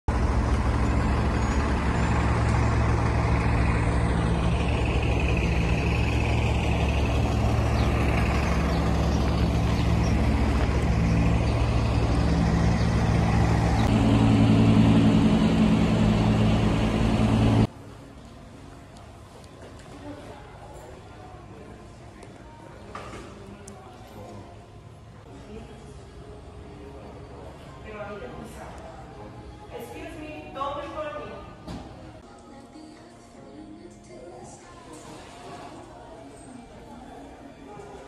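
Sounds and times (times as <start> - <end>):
heavy vehicle engine droning: 0.1 - 18.8.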